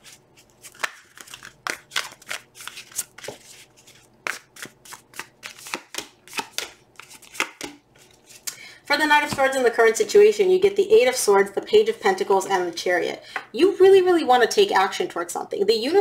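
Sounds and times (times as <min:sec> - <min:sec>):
cards being shuffled by hand: 0:00.0 - 0:08.4.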